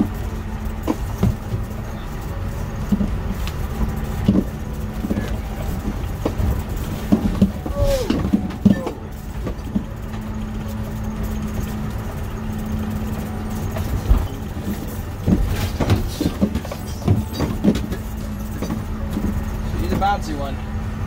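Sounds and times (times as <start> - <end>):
interior parts rattling: 0.0 - 20.7
engine and road rumble: 0.0 - 21.0.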